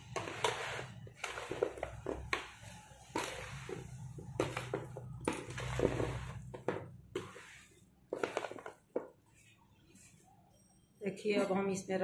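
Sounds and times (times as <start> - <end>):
spoon scraping in plastic tub: 0.0 - 9.0.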